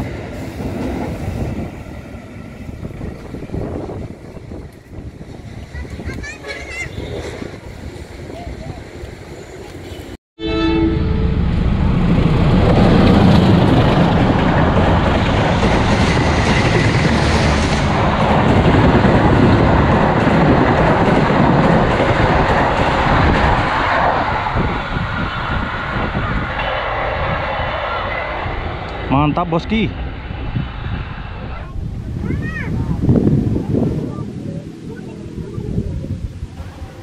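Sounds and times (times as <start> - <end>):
passenger train passing at speed: 0.0 - 37.0
train horn: 10.4 - 11.6.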